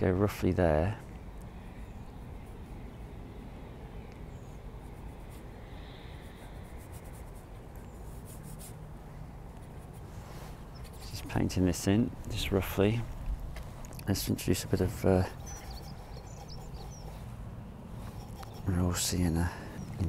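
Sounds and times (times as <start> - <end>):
low background rumble: 0.0 - 20.0
paint brush scratching on panel: 6.3 - 8.8, 9.5 - 11.5, 15.2 - 17.3, 18.0 - 19.2.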